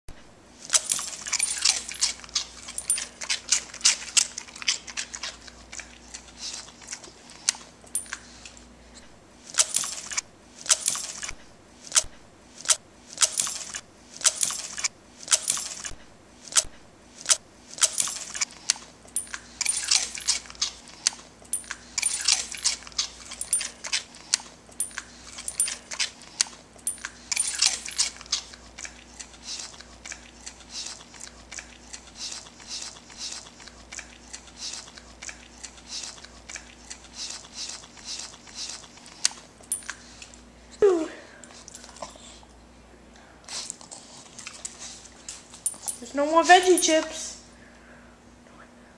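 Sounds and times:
dog crunching snacks: 0.6s - 8.7s, 9.4s - 40.5s.

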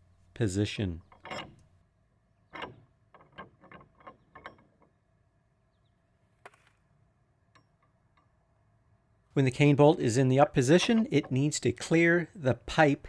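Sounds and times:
metal bolt clicking: 1.1s - 1.8s, 2.4s - 5.1s, 10.6s - 11.9s.

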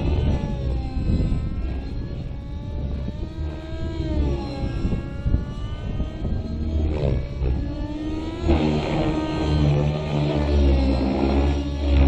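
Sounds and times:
low rumble: 0.0s - 12.0s
model helicopter engine at high revs: 0.0s - 12.0s.

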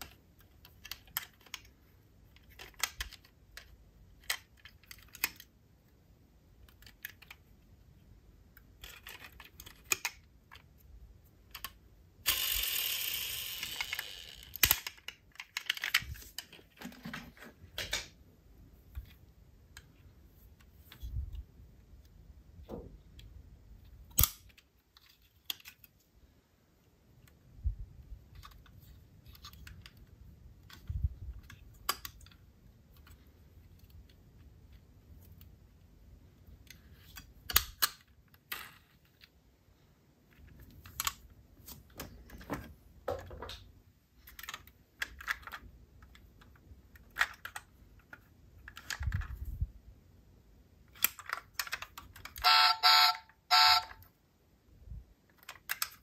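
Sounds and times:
toy cars clicking and tapping: 11.5s - 16.1s, 55.3s - 56.0s.

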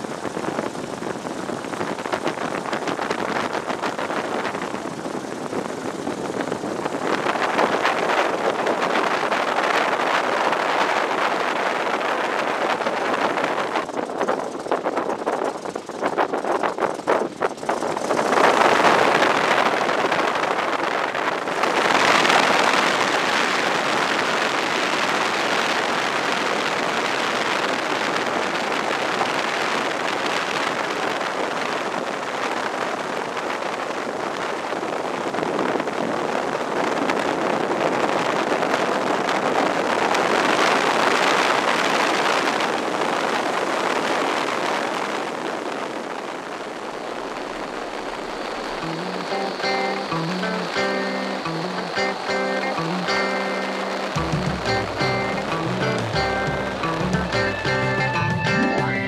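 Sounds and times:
wind buffeting the microphone: 0.0s - 50.2s
radial aircraft engine running: 12.8s - 19.6s.

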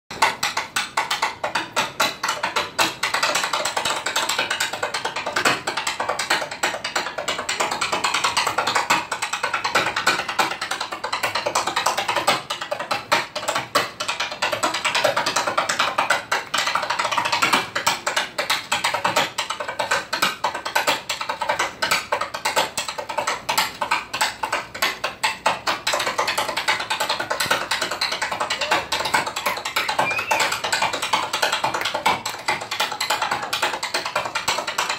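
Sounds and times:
tap shoes clicking on stage: 0.1s - 34.9s.

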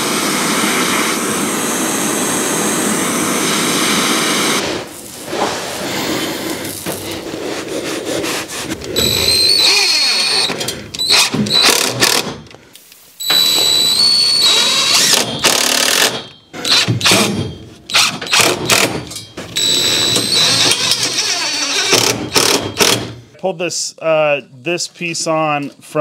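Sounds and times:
power drill whining: 0.0s - 4.9s, 8.7s - 12.6s, 13.2s - 23.2s.

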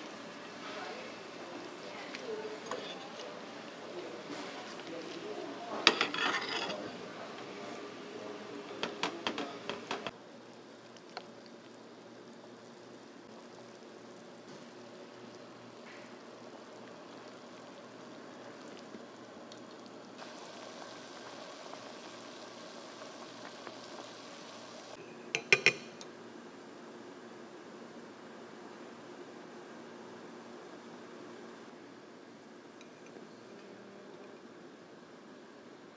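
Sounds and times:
dishes and utensils clinking: 5.8s - 6.9s, 25.4s - 26.0s
pot of broth boiling hiss: 6.9s - 35.9s.

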